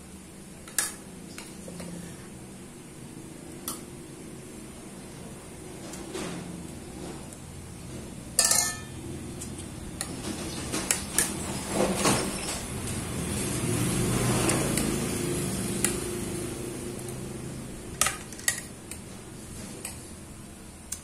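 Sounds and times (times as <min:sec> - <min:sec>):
spoon clinking on ceramic plate: 0:08.4 - 0:08.9.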